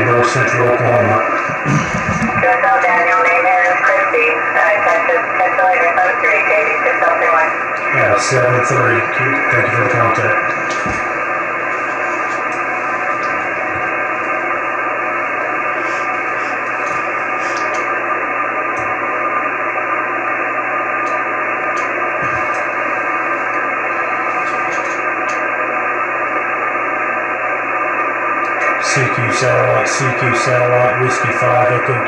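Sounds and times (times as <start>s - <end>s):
radio band noise hiss: 0.0s - 32.0s.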